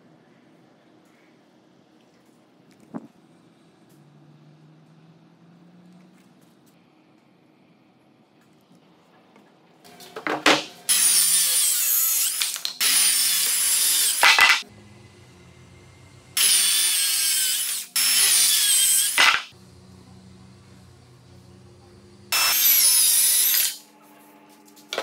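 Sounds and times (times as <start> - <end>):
circular saw cutting wood: 10.6 - 23.8.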